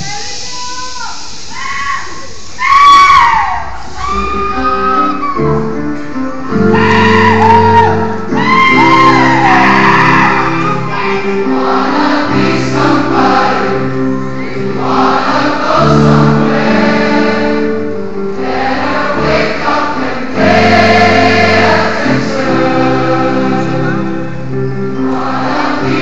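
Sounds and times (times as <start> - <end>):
large choir singing: 6.4 - 26.0.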